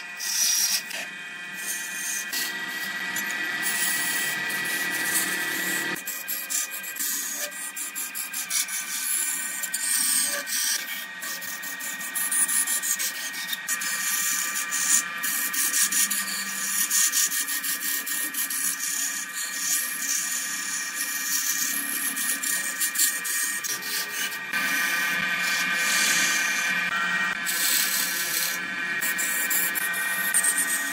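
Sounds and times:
turning tool scraping wood: 0.0 - 30.9
wood lathe running: 0.0 - 30.9.

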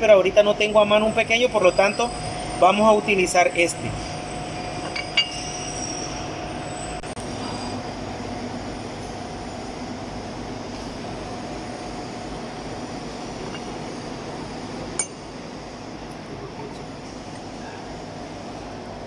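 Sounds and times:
machinery humming: 0.0 - 19.0
sharp metallic clink: 15.0 - 15.3.

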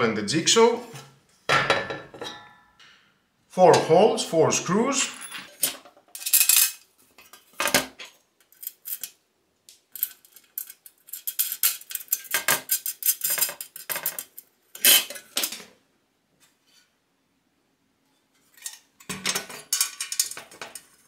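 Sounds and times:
metal screws clinking on metal plate: 5.1 - 7.4, 8.0 - 9.2, 9.9 - 15.4, 18.6 - 21.0.

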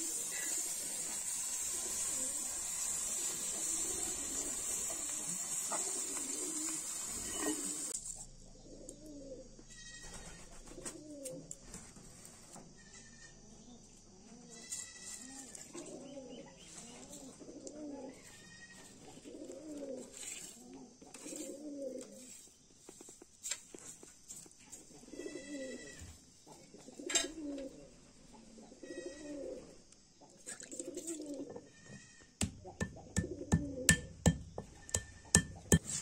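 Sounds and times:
doves cooing: 0.0 - 7.9, 8.5 - 11.8, 15.2 - 22.3, 24.8 - 31.6, 33.0 - 34.0.

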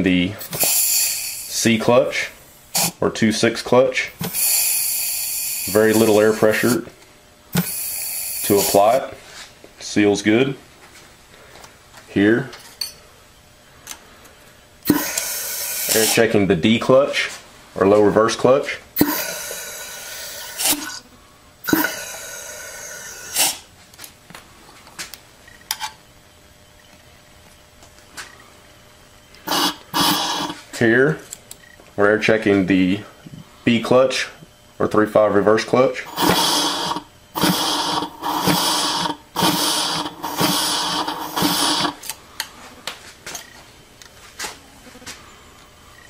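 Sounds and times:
burst of air: 0.4 - 1.6, 4.2 - 6.8, 7.5 - 9.0, 14.8 - 16.3, 19.0 - 21.0, 21.6 - 23.7, 29.5 - 30.6, 36.1 - 42.0
compressed air hissing: 0.4 - 3.0, 4.2 - 6.9, 7.5 - 9.5, 14.8 - 16.5, 19.0 - 21.0, 21.6 - 23.7, 29.4 - 30.7, 36.0 - 42.1.

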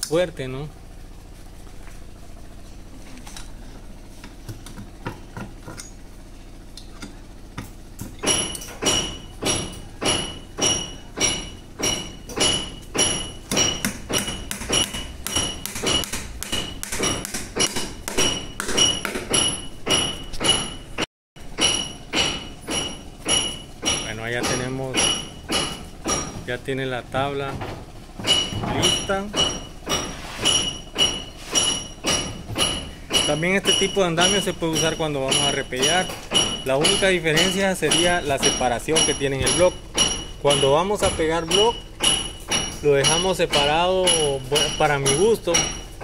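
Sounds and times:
hammer driving nails ringing: 8.1 - 21.0, 21.6 - 26.4, 28.2 - 46.0.

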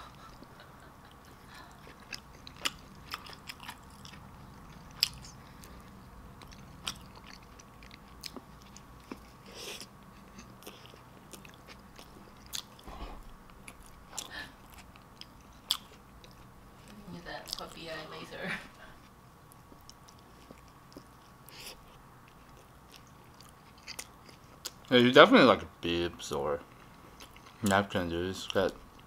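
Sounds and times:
person chewing: 1.1 - 17.6, 19.0 - 24.9, 26.6 - 27.7.

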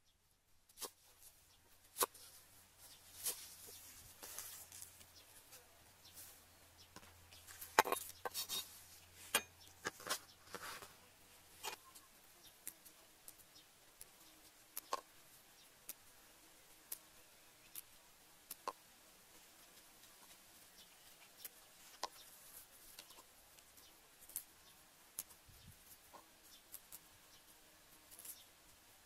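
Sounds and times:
leafy greens rustling: 0.7 - 12.1
soft ticks: 11.7 - 15.1, 15.8 - 16.0.

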